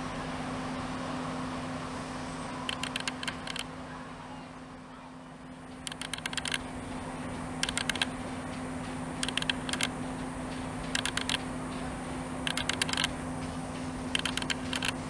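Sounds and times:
train diesel engines idling: 0.0 - 15.0
rapid sharp clicks: 2.7 - 3.7, 5.7 - 7.0, 7.6 - 15.0.

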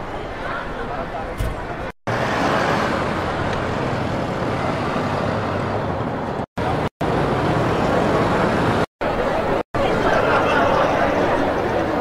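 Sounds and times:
road noise hum: 0.0 - 12.0
car engines running: 2.1 - 9.6.

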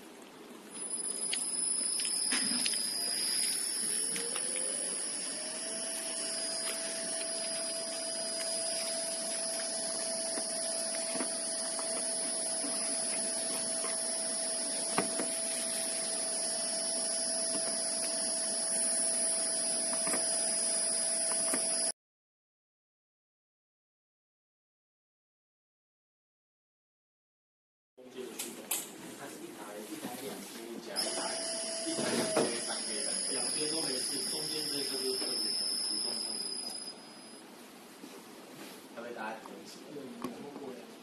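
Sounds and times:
electric motor whine: 0.8 - 21.9, 31.0 - 36.9
motor tone rising in pitch: 0.8 - 21.9.

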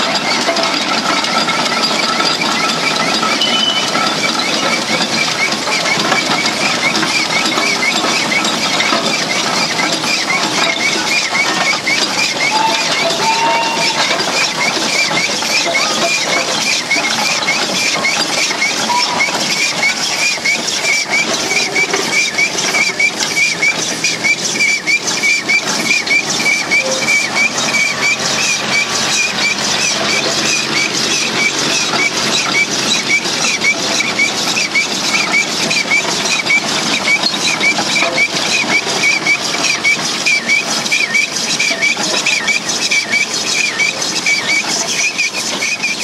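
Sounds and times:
steam roller clatter: 0.0 - 46.0
high squeak: 3.4 - 5.0, 10.2 - 23.7, 24.4 - 46.0.

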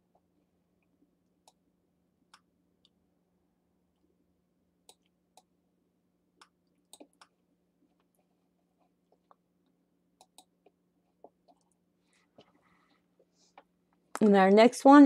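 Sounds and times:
computer mouse clicks: 10.2 - 10.5.

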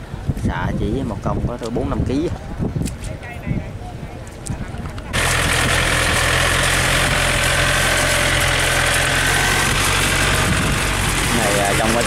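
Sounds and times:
tractor diesel engine running: 5.1 - 12.0.

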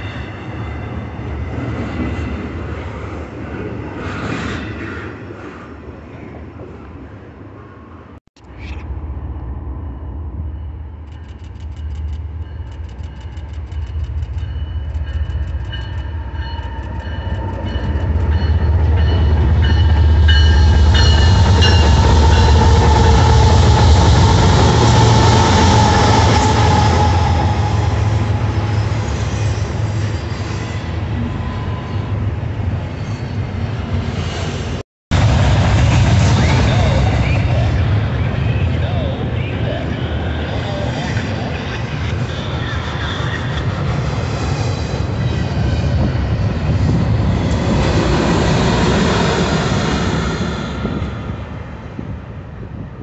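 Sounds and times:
diesel locomotive rumble: 8.4 - 30.3, 34.7 - 53.0
train wheels rolling: 10.6 - 30.8.

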